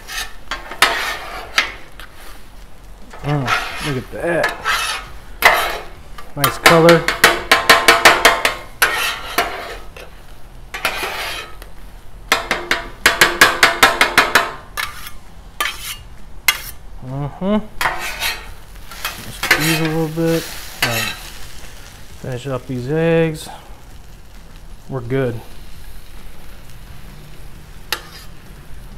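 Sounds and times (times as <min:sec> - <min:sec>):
spatulas scraping on griddle: 0:00.0 - 0:16.9, 0:17.8 - 0:28.9
food sizzling: 0:00.0 - 0:28.9
metal spatulas clacking on griddle: 0:00.5 - 0:01.8, 0:04.4 - 0:09.6, 0:12.3 - 0:16.8, 0:17.8 - 0:19.9.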